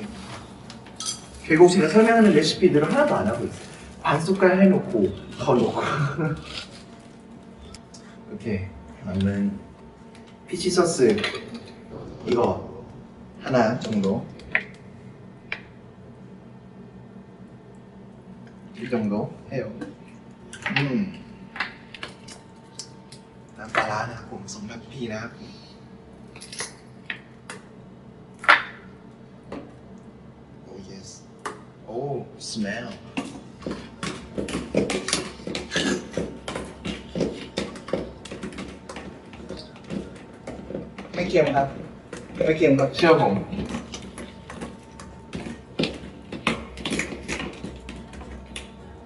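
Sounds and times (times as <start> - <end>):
steady low hum: 0.0 - 49.0
wooden pestle pounding in mortar: 33.1 - 48.3.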